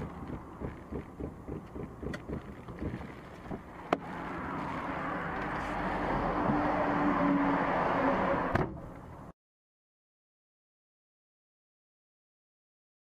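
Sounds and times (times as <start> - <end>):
car cabin noise: 0.0 - 6.6
rushing air and road noise: 0.0 - 9.3.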